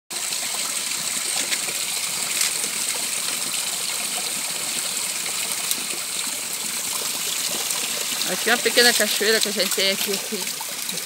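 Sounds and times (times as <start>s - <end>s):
water trickling over stone: 0.1s - 11.0s.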